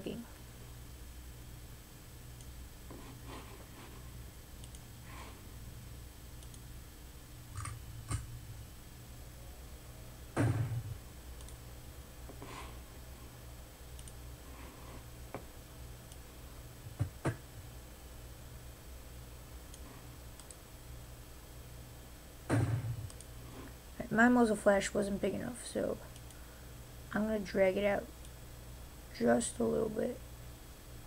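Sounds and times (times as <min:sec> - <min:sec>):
low steady hum: 0:00.0 - 0:31.0
small desk noises: 0:02.9 - 0:05.5
computer mouse clicks: 0:04.6 - 0:04.8, 0:06.4 - 0:06.7, 0:07.5 - 0:08.3, 0:11.4 - 0:11.6, 0:13.9 - 0:14.2, 0:19.7 - 0:20.6, 0:23.0 - 0:23.3
dull thump: 0:10.4 - 0:11.0, 0:22.5 - 0:23.0.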